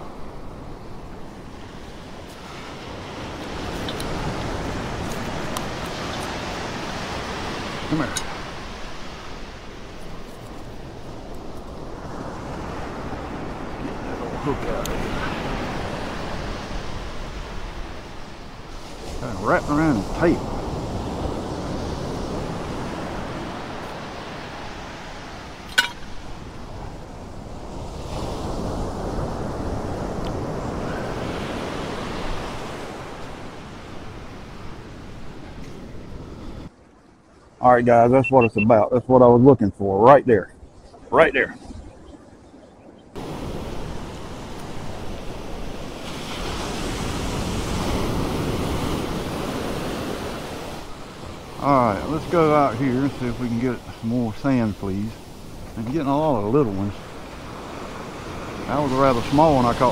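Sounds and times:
wind buffeting microphone: 0.0s - 36.7s
surf washing ashore: 0.0s - 38.7s, 43.2s - 59.9s
sharp metallic clink: 25.7s - 26.2s.

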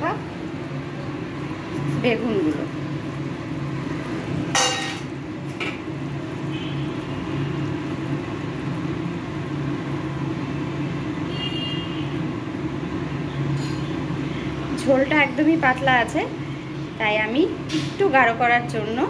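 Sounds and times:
gas stove rumble: 0.0s - 19.0s
curry simmering: 0.3s - 14.8s.

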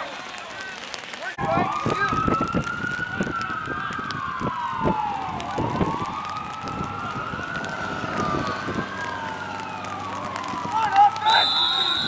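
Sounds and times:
siren wailing: 1.4s - 12.0s.

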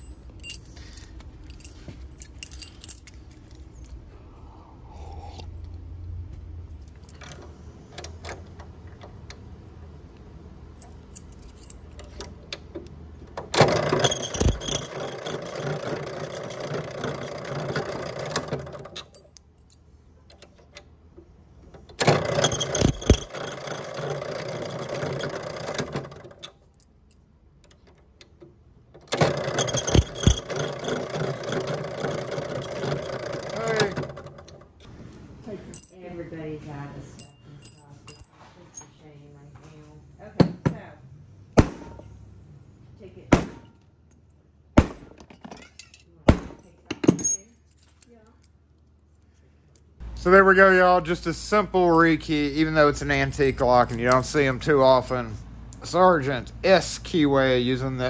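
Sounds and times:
keys clinking: 0.0s - 4.0s, 10.7s - 12.2s, 13.9s - 17.8s, 22.3s - 25.6s, 29.4s - 34.3s
key-cutting machine running: 22.0s - 26.0s, 29.2s - 34.3s.

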